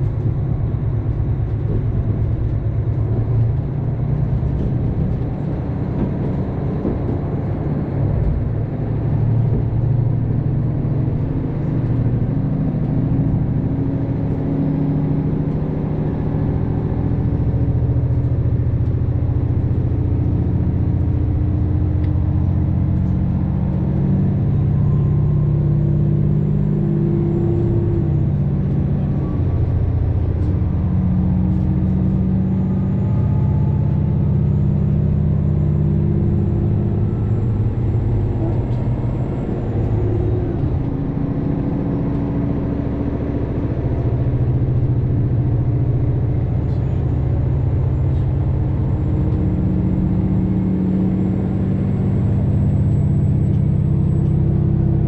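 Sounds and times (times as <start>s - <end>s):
train wheels rumbling on rails: 0.0s - 14.6s, 27.1s - 34.1s, 36.2s - 51.0s
diesel engines droning: 0.0s - 55.0s.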